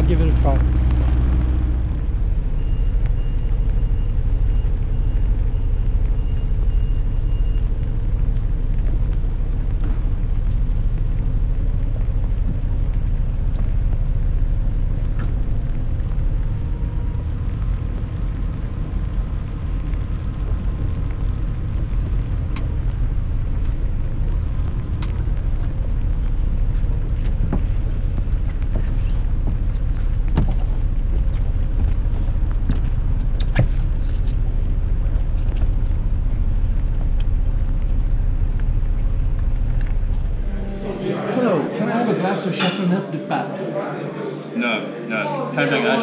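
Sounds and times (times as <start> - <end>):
boat diesel engine rumbling: 0.0 - 46.0.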